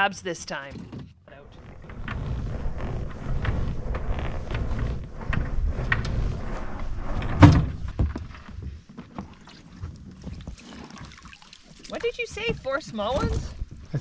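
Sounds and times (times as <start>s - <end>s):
rope knocks and clicks on boat: 0.7s - 14.0s
low rumble: 1.3s - 8.4s
loud thump: 7.2s - 8.2s.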